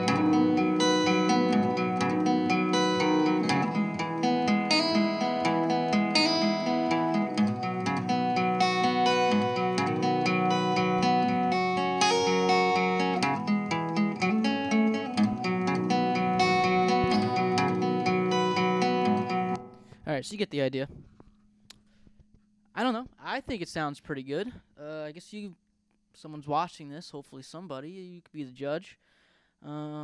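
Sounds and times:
guitar through spring reverb: 0.0s - 20.1s.

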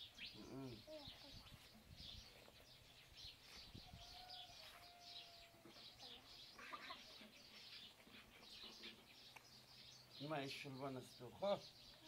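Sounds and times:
small birds chirping: 0.0s - 12.0s
distant rooster crowing: 3.8s - 5.6s.

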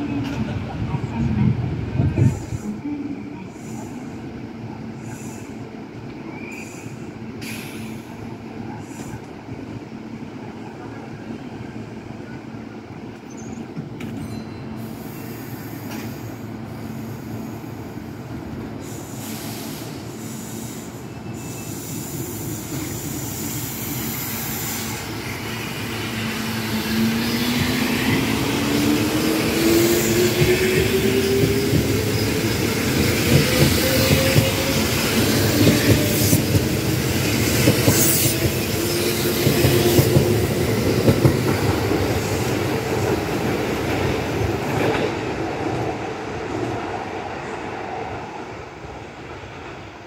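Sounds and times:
electric train humming: 20.0s - 49.9s.

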